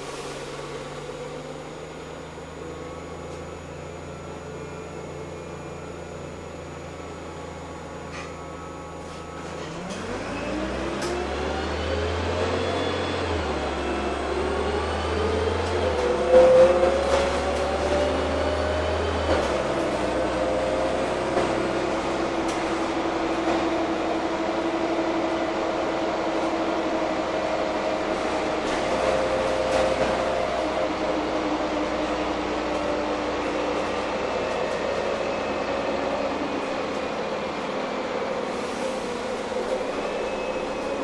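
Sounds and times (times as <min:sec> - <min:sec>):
bus engine running with whine: 0:00.0 - 0:41.0.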